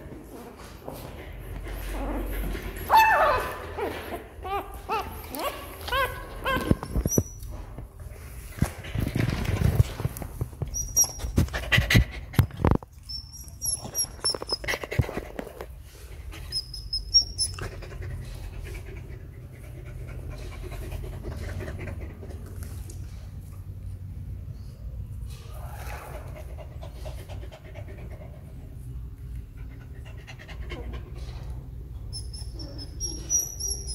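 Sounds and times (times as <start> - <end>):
knocks and rustles: 6.5 - 13.0.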